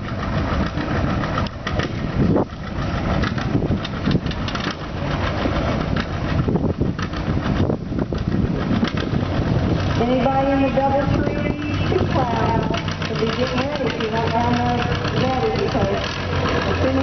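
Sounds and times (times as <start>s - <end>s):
engine knocks and pops: 0.0s - 10.1s, 10.8s - 17.0s
tractor engines running hard: 0.0s - 17.0s.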